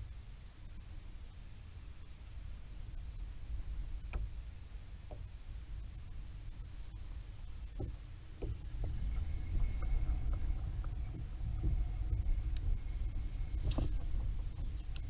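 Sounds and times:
wind rumbling on microphone: 0:00.0 - 0:15.0
light knocks against hull: 0:07.7 - 0:12.2.

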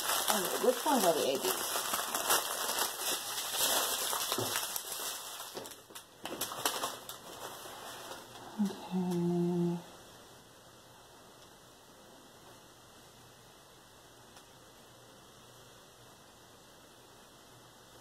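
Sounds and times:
plastic packets crinkling: 0:00.0 - 0:08.4
woman humming: 0:08.4 - 0:10.0.

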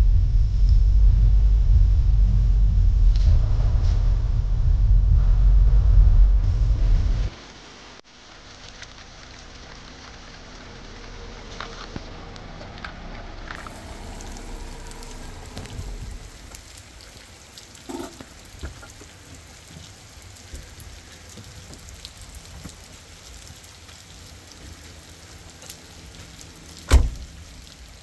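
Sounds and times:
rain pattering: 0:06.2 - 0:28.0
loud thump: 0:26.9 - 0:27.3.

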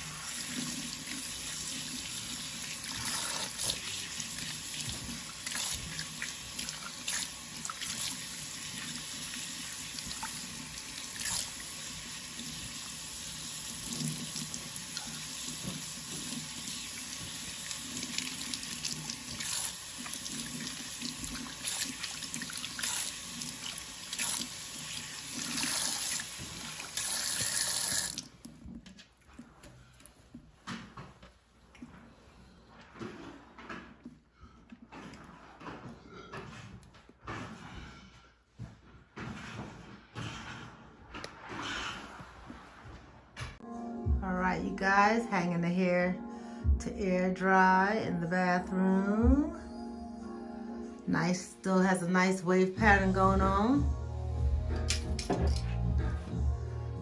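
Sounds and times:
faucet water splashing into sink: 0:00.0 - 0:28.3.

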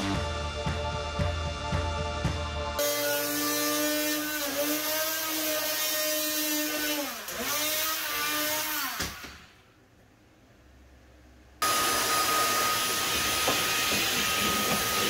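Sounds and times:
power tool motor running: 0:02.8 - 0:09.3, 0:11.6 - 0:15.0.

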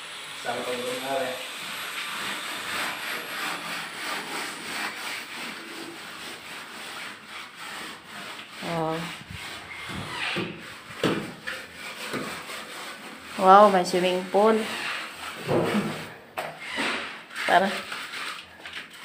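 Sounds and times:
trowel scraping cement: 0:00.5 - 0:19.0.

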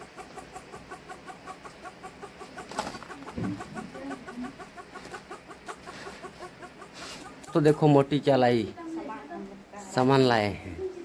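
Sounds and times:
hen clucking: 0:00.0 - 0:09.0.

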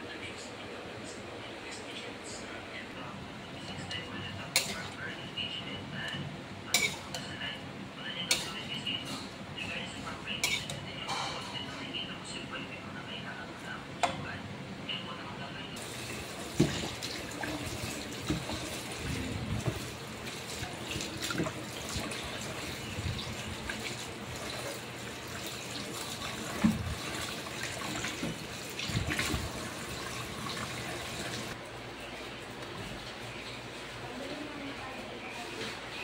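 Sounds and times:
faucet running into metal sink: 0:15.8 - 0:31.6.

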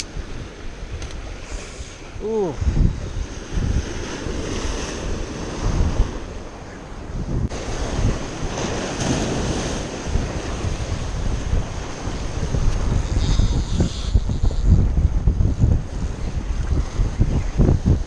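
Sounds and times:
wind buffeting microphone: 0:00.0 - 0:18.0
surf breaking on rocks: 0:07.5 - 0:16.1.

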